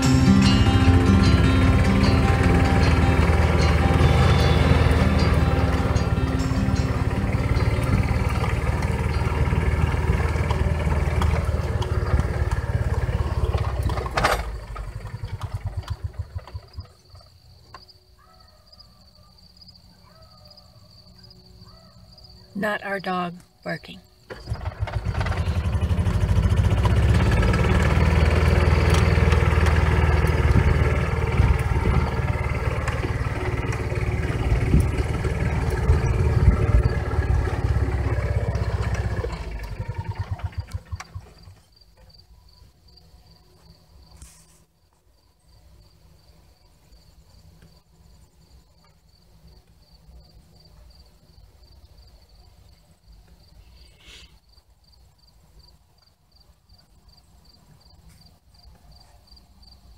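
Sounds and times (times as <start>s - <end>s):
small petrol engine running: 0.0s - 17.5s, 24.3s - 42.2s.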